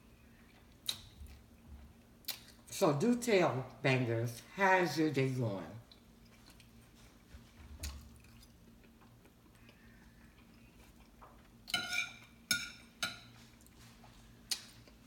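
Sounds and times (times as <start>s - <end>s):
fork clinking on a plate: 11.7s - 13.4s
fork scraping a plate: 11.7s - 13.5s.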